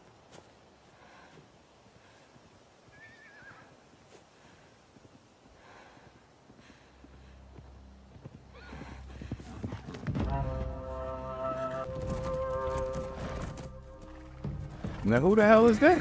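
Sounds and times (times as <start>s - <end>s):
horse whinnying: 2.9s - 3.7s
hoofbeats: 4.9s - 16.0s.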